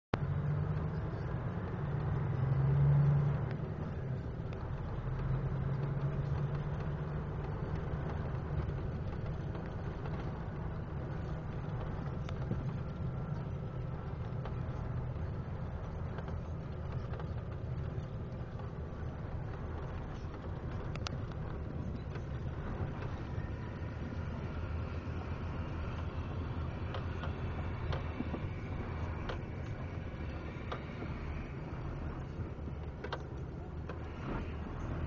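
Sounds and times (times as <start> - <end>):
diesel truck engine hum: 0.1 - 35.0.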